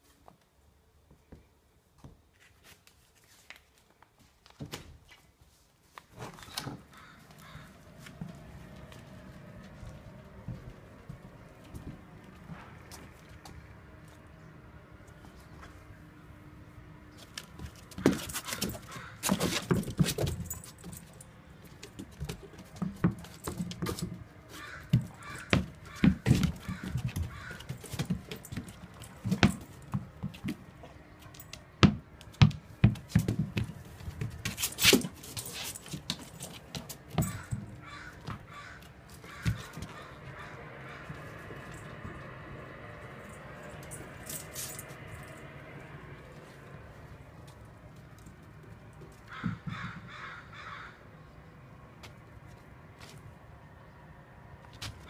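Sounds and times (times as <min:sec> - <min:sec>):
collar tags jingling: 0:17.5 - 0:31.8, 0:33.0 - 0:38.6, 0:39.3 - 0:46.0.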